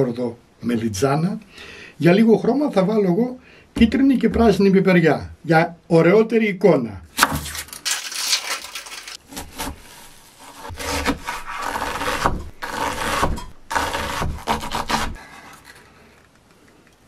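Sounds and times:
knife cutting on cutting board: 9.3 - 15.2.

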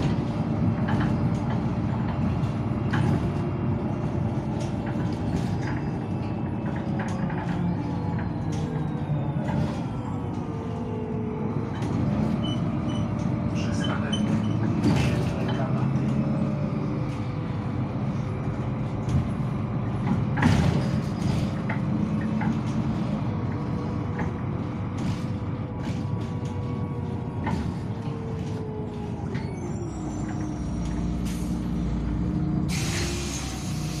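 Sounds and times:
bus drivetrain hum with whine: 0.0 - 34.0
air hiss: 32.7 - 34.0.

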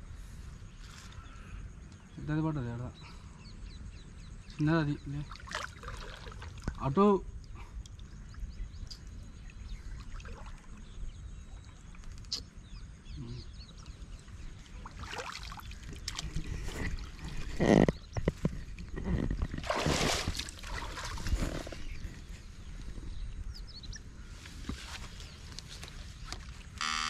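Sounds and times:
river water splashing: 5.3 - 6.8, 14.6 - 17.5, 19.6 - 21.8
wind rumble on microphone: 5.8 - 26.8.

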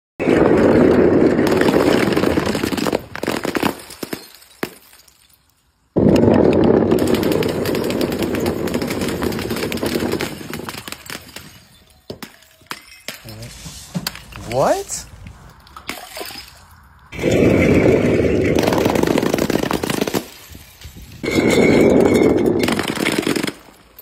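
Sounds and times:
glass bottles smashing: 3.5 - 6.0, 7.0 - 14.9, 15.8 - 23.0
glass jars shattering: 3.8 - 5.9, 10.4 - 13.6, 15.8 - 17.7, 20.3 - 22.8.

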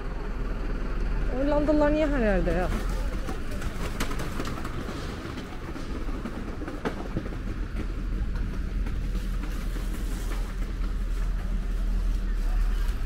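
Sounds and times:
low street rumble: 0.0 - 13.0.

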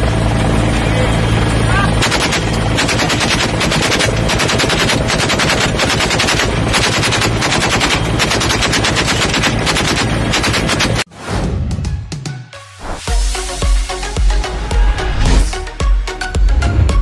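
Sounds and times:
helicopter drone: 0.0 - 11.1
machine gun bursts: 2.0 - 11.0.

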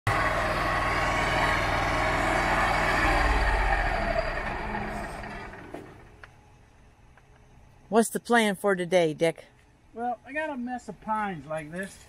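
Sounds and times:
loud rushing noise: 0.1 - 6.1
motor running: 0.1 - 6.3.

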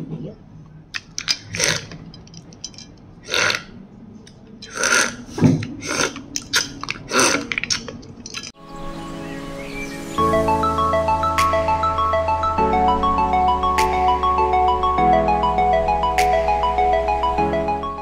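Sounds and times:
ice and ladle clicks: 1.0 - 3.7, 6.1 - 8.5
ladle sloshing liquid: 5.1 - 8.6
wet splashes and pours: 6.3 - 8.6.

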